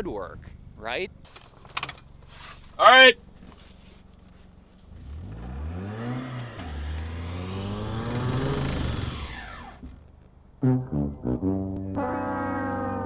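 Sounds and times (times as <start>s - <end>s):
car engine revving hard: 4.9s - 9.9s.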